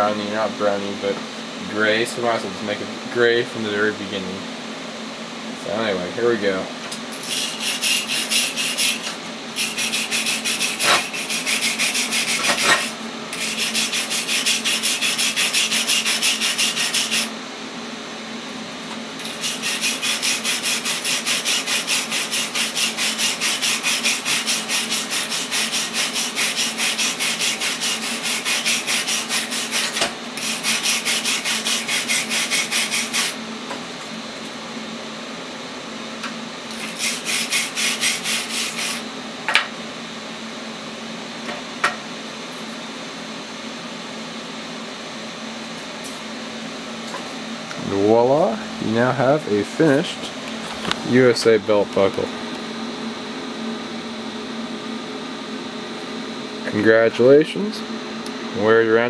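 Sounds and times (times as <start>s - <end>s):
wire brush scrubbing metal: 7.1s - 17.3s, 19.2s - 33.4s, 36.7s - 39.0s.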